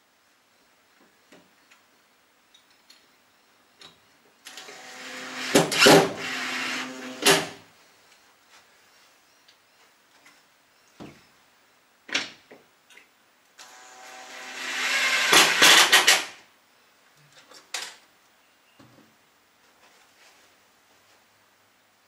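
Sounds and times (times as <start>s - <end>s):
cordless drill running: 4.5s - 7.6s, 13.6s - 16.2s.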